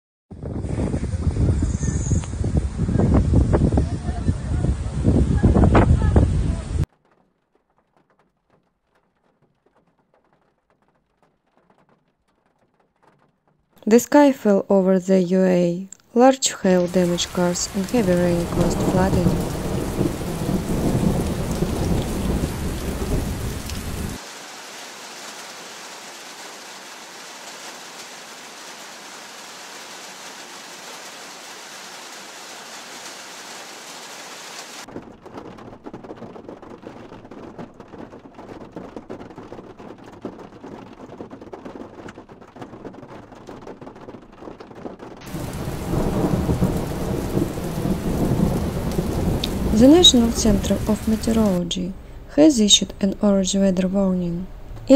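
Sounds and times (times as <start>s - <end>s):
hail and rain pelting: 5.4s - 14.0s, 16.7s - 52.2s
hailstones ticking: 6.8s - 14.4s, 16.7s - 52.8s.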